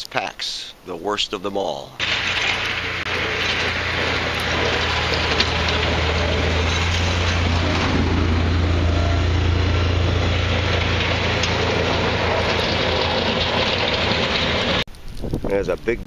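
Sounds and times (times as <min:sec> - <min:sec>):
plow blade scraping snow: 0:02.0 - 0:14.8
truck engine running: 0:02.0 - 0:14.9.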